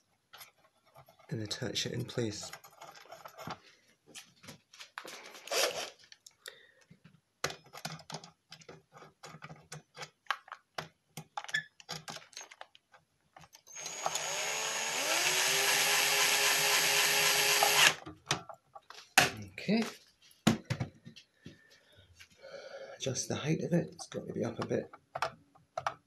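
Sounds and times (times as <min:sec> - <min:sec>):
drill motor whining: 0:13.7 - 0:18.0.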